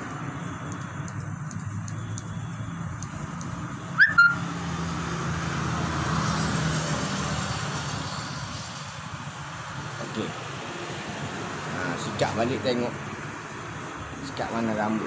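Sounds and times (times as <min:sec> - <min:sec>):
motor vehicle humming: 0:00.0 - 0:14.4
high-pitched chirps: 0:04.0 - 0:04.4.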